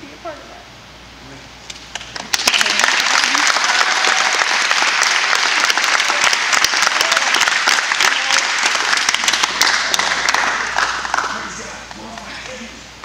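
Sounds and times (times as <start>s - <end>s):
audience applauding: 1.9s - 12.2s.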